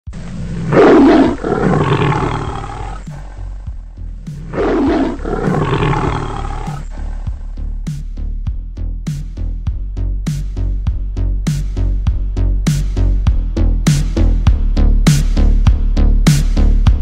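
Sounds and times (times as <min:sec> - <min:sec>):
lion roaring: 0:00.1 - 0:07.3
background music with steady beat: 0:01.9 - 0:17.0.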